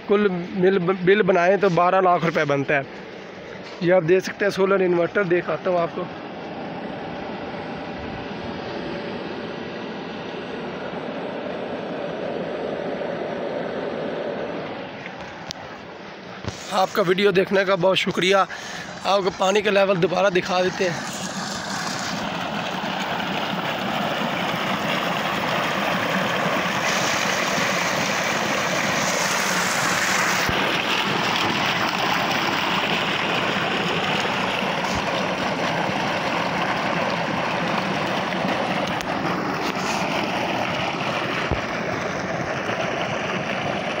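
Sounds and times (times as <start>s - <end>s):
water splashing and churning: 0.0s - 44.0s
water gushing into tank: 16.4s - 44.0s.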